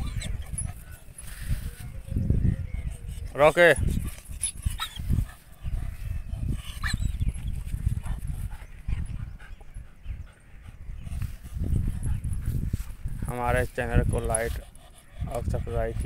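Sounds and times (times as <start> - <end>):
dog whimpering: 0.0 - 3.2
wind rumble on microphone: 0.0 - 16.0.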